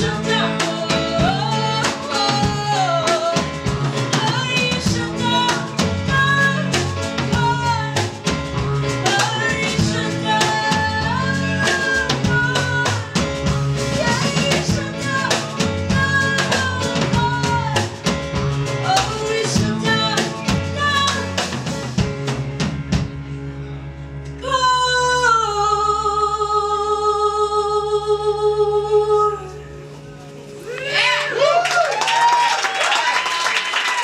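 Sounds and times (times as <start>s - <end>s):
woman singing: 0.0s - 21.6s, 24.4s - 29.8s
drum kit: 0.0s - 23.4s, 29.8s - 34.0s
live band playing pop song: 0.0s - 25.3s.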